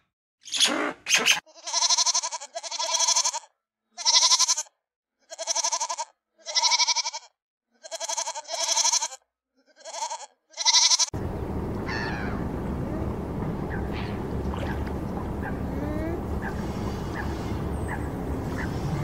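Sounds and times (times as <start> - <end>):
goat bleating: 1.4 - 19.0.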